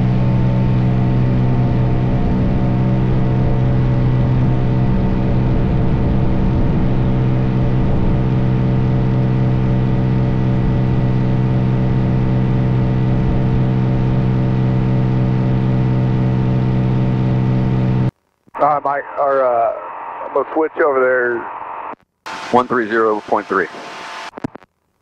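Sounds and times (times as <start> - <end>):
aircraft engine droning: 0.0 - 18.1, 22.3 - 24.3.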